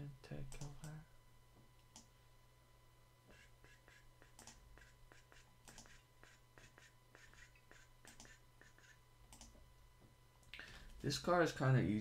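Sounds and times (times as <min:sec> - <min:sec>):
low electrical hum: 0:00.0 - 0:12.0
computer mouse clicks: 0:03.3 - 0:09.6.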